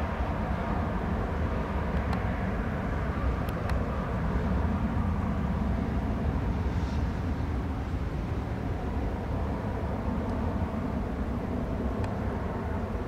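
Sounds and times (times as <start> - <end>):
distant jet engine rumble: 0.0 - 13.0.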